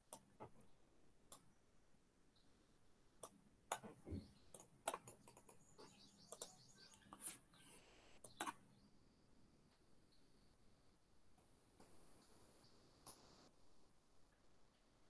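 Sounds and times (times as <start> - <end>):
faint room hiss: 0.0 - 15.0
keyboard and mouse clicks: 3.2 - 7.2.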